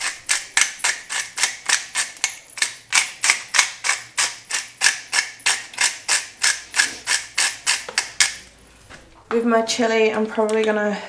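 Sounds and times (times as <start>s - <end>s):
pepper grinder crunching: 0.0s - 8.6s.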